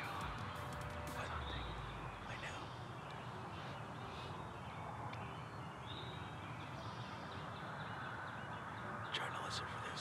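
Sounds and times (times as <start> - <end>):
birds chirping: 0.0 - 10.0.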